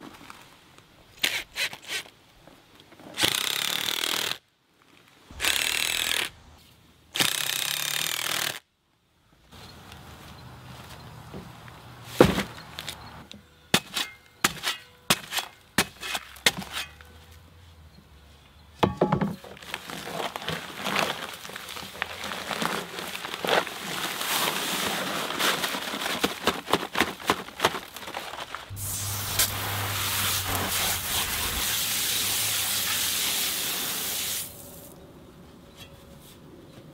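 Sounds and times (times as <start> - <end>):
paper bag tearing: 19.7 - 33.1
dry mix pouring out: 28.7 - 34.9.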